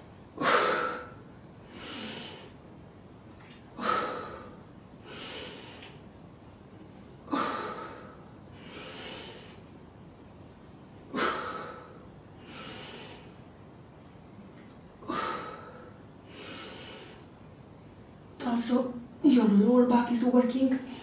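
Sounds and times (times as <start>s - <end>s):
woman breathing deeply: 0.4s - 2.6s, 3.7s - 6.0s, 7.2s - 9.7s, 11.1s - 13.5s, 15.0s - 17.4s.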